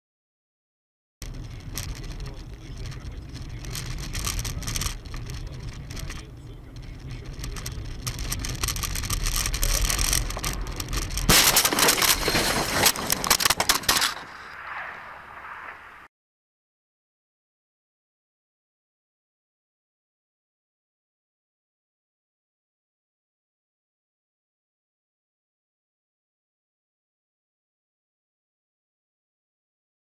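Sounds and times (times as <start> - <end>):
road and engine rumble: 1.2 - 16.1
car crunching into snowbank: 9.7 - 14.5.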